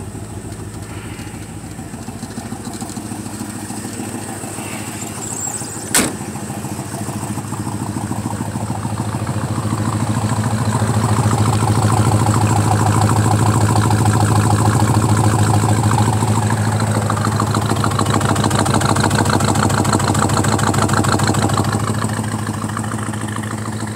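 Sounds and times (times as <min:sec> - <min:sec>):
car engine idling: 0:00.0 - 0:23.9
sharp click: 0:05.9 - 0:06.3.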